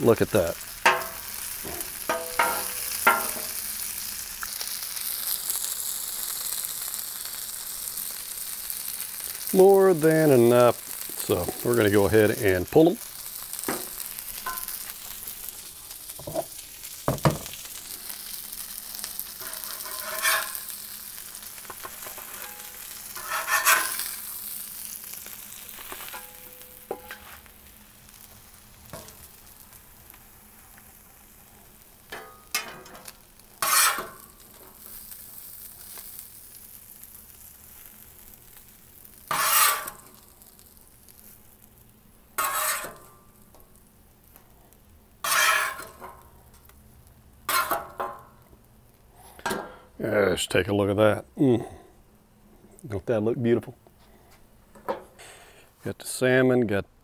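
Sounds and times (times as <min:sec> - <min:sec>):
food sizzling on griddle: 0:00.0 - 0:52.2
metal spatula scraping griddle: 0:00.9 - 0:03.9, 0:17.8 - 0:24.6, 0:25.3 - 0:27.5, 0:32.1 - 0:34.9, 0:39.3 - 0:40.2, 0:42.4 - 0:43.2, 0:45.2 - 0:46.2, 0:47.5 - 0:48.3.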